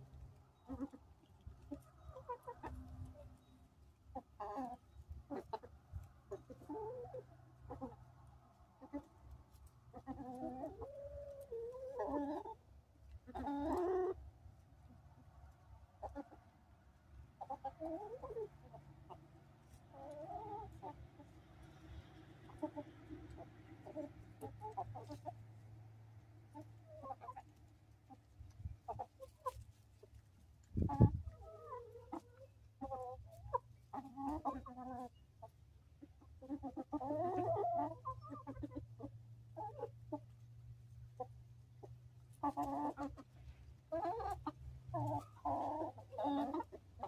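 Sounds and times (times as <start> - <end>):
hens clucking: 0.0 - 47.0.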